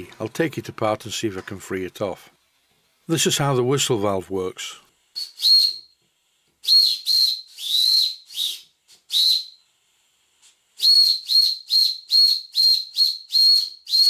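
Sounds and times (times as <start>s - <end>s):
steam whistle toots: 5.2s - 5.9s, 6.6s - 9.6s, 10.8s - 14.0s.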